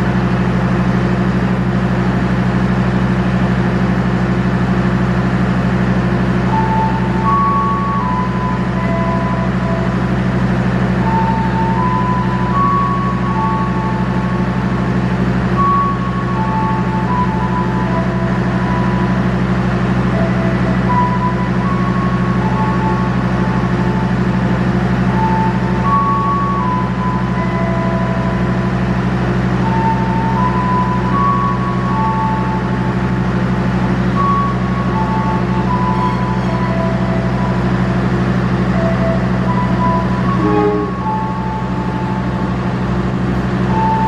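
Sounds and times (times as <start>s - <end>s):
diesel train idling: 0.0s - 44.0s
simple tune of high notes: 39.5s - 42.5s.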